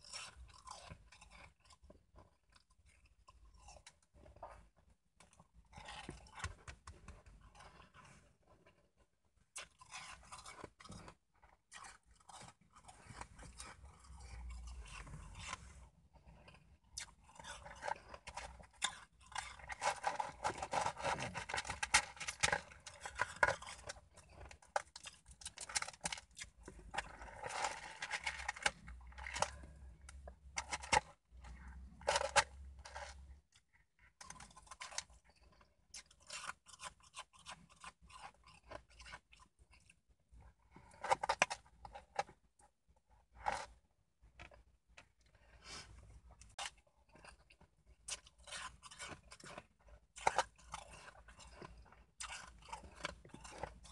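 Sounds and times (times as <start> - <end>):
shaved ice being chewed: 0.0 - 53.9.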